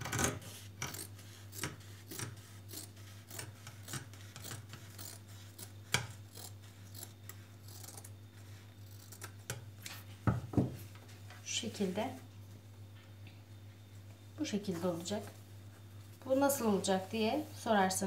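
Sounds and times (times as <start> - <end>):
scissors snipping fabric: 0.2 - 8.1.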